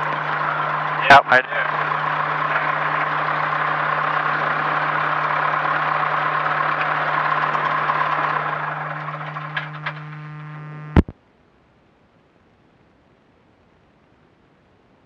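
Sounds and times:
light aircraft engine droning: 0.0 - 11.1
constant low hum: 0.0 - 15.0.

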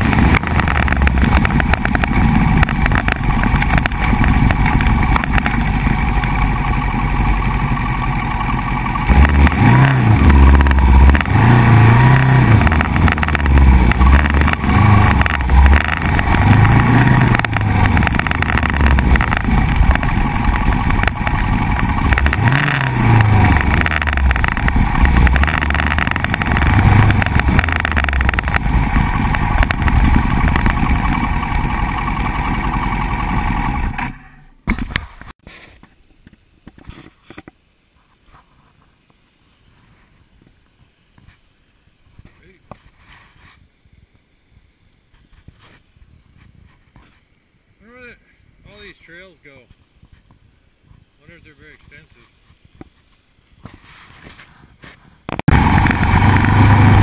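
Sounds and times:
motorcycle engine revving: 0.0 - 34.6, 55.3 - 57.0
wind and road noise: 0.0 - 57.0.

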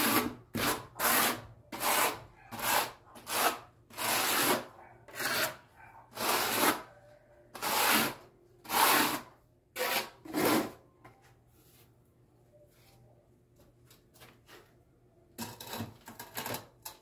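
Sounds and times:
trowel scraping adhesive on tile: 0.0 - 6.9, 7.6 - 10.8.

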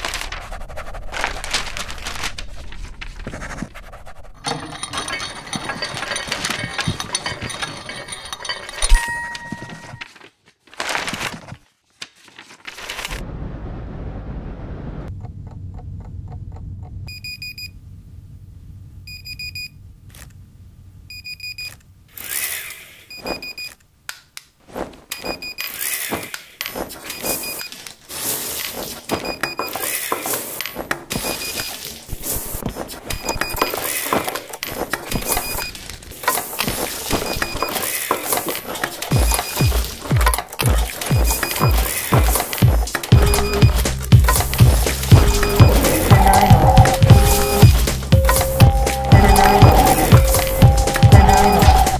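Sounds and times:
rustling knocks and clatter: 4.4 - 11.6
alarm clock beeping: 8.8 - 10.0, 41.1 - 51.9
low steady hum: 13.3 - 22.1.

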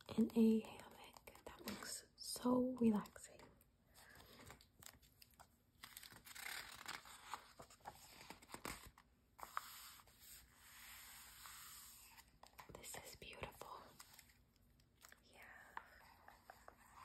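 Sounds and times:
magazine page turning: 4.1 - 12.7.

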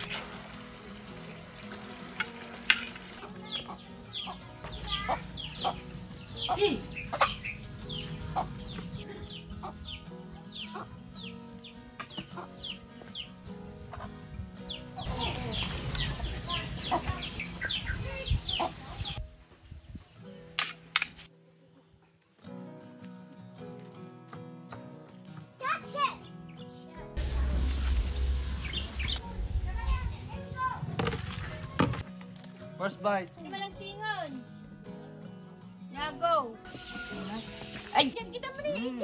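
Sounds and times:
noodles sizzling in a wok: 0.0 - 3.2, 36.7 - 38.1
chickens peeping: 3.5 - 11.7, 13.9 - 19.2.

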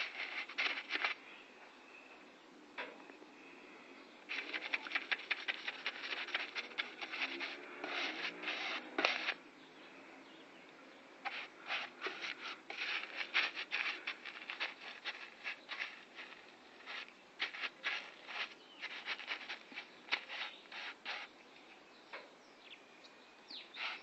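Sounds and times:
scraping on vehicle body panel: 0.0 - 1.2, 4.3 - 9.4, 11.3 - 21.3.

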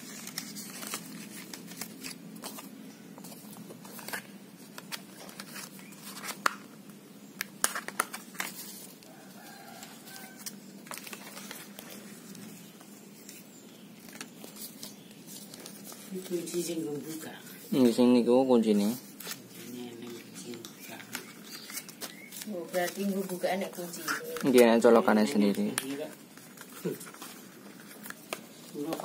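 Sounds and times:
paper and cardboard rustling: 0.0 - 6.7, 7.6 - 29.0
sharp cardboard snaps: 7.4 - 8.6.

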